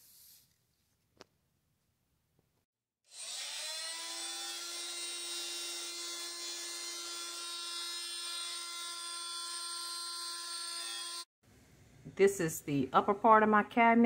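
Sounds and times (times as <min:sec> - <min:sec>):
power tool motor whine: 0:03.1 - 0:11.3.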